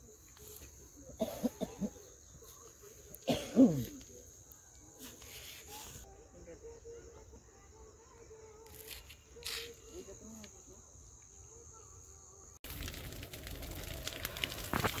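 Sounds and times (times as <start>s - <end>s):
high-pitched insect trill: 0.0s - 15.0s
stubble burning with crackles: 8.6s - 10.6s, 12.2s - 15.0s.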